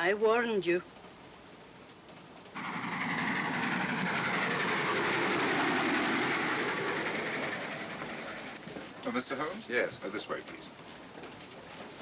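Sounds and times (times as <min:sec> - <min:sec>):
train rumbling on rails: 0:00.9 - 0:09.4.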